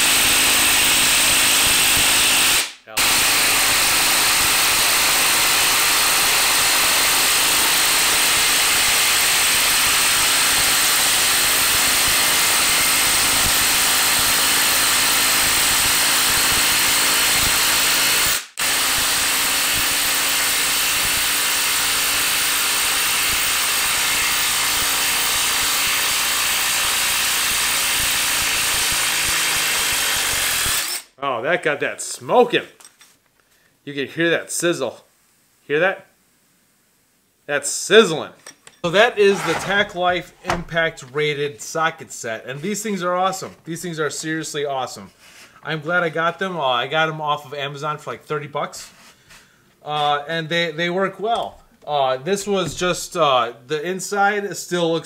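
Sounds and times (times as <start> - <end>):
impact driver hammering screw into wood: 0.0 - 31.0.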